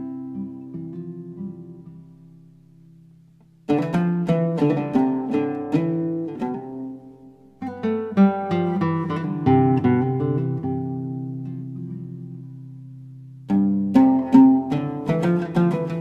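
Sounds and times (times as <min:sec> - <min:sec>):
acoustic guitar music: 0:00.0 - 0:16.0.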